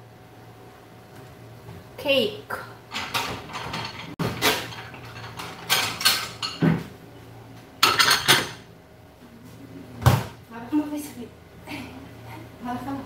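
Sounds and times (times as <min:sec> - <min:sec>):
dishes clinking and knocking: 0:02.9 - 0:06.9, 0:07.8 - 0:08.7.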